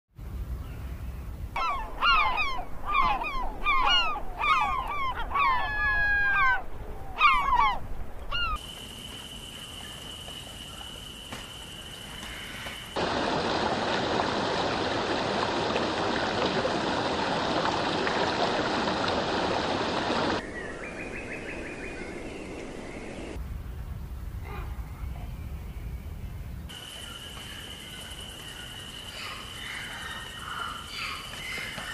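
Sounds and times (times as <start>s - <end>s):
harsh bird calls: 1.6s - 8.6s.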